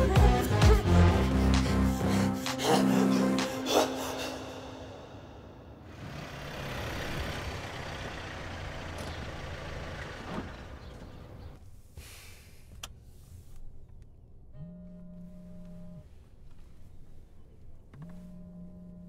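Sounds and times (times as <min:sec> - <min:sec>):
car driving past: 0:05.7 - 0:11.5.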